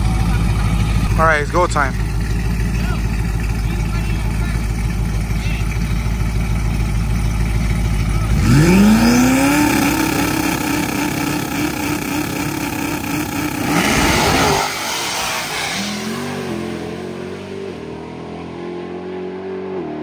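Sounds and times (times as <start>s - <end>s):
trucks idling: 0.0s - 17.6s
engines revving on launch: 8.2s - 20.0s.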